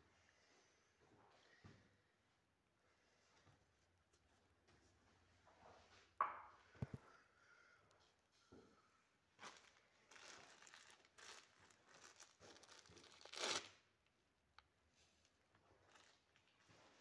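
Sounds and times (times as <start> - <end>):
shiny wrapper crinkling: 9.4 - 13.8.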